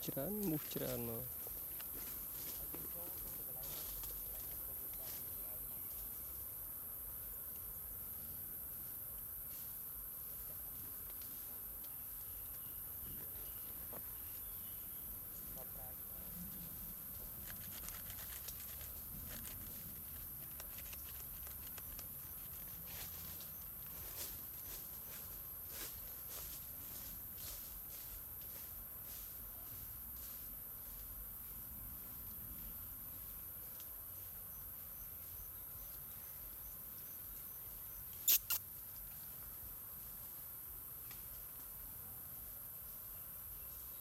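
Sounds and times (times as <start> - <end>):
faint insect chirp: 0.0 - 44.0
dry leaves crackling: 0.1 - 6.4, 13.4 - 30.4.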